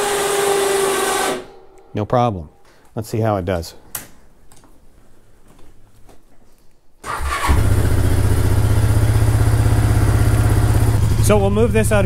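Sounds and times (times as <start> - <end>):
engine cranking: 7.0 - 8.5.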